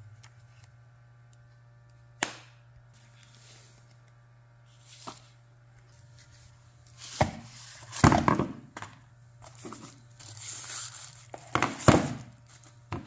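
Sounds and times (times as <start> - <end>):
cardboard packaging rustling: 9.4 - 12.8.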